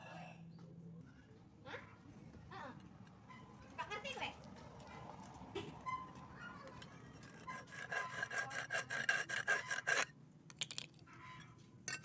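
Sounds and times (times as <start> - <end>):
rapid rhythmic rasping scrape: 6.7 - 10.1.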